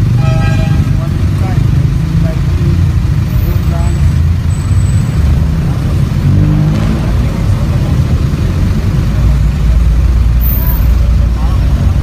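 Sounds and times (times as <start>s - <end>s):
low rumble of street traffic: 0.0s - 12.0s.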